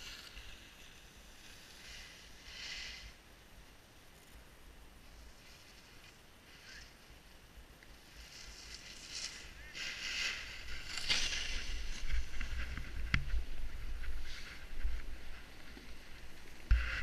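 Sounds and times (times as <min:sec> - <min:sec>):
edges scraping over packed snow: 0:08.0 - 0:17.0
wind rumbling on microphone: 0:08.0 - 0:17.0.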